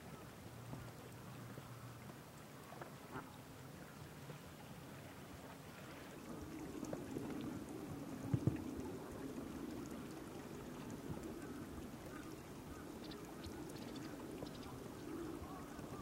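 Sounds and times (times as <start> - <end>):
sea water lapping and splashing: 4.4 - 16.0.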